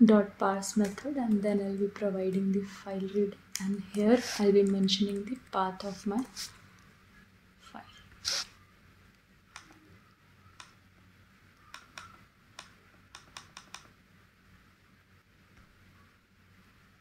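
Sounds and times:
computer keyboard keys clicking: 0:04.6 - 0:05.5, 0:11.6 - 0:13.9
mouse button clicks: 0:09.5 - 0:09.8, 0:11.6 - 0:13.9.

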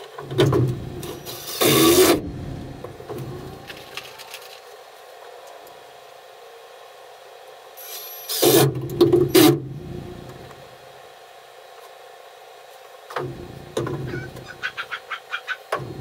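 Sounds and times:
cordless drill driving a screw: 0:01.2 - 0:02.2, 0:07.8 - 0:08.6.

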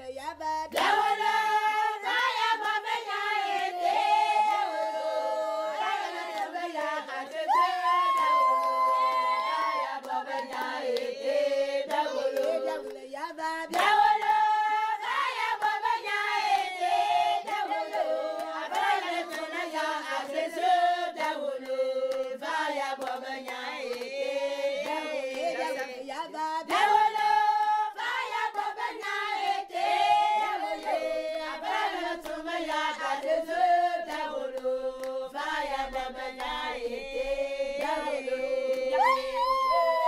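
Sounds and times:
group of voices singing: 0:00.0 - 0:40.0.

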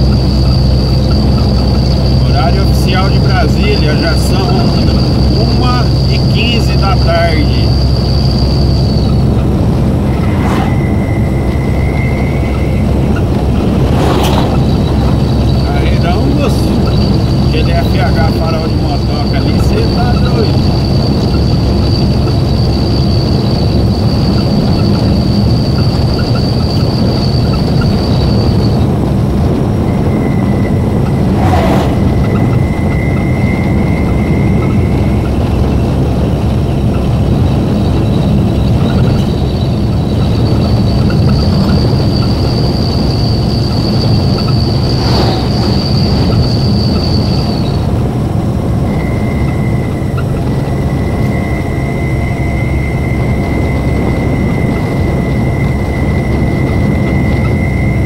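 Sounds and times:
thin high whine: 0:00.0 - 0:23.7, 0:29.8 - 0:35.4, 0:40.9 - 0:48.0
truck engine and road rumble: 0:00.0 - 0:58.0.

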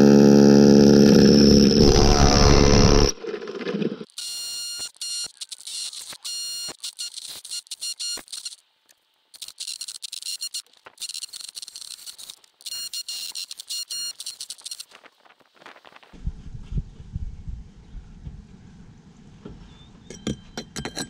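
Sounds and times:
power drill boring through brick: 0:00.0 - 0:04.9.

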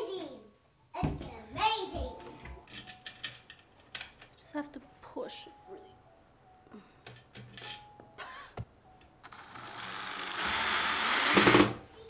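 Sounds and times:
cordless drill driving screw: 0:09.2 - 0:11.8.

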